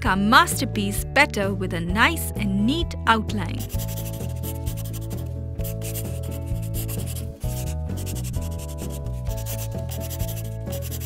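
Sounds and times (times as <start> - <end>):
background music: 0.0 - 11.0
marker squeaking on paper: 3.6 - 11.0.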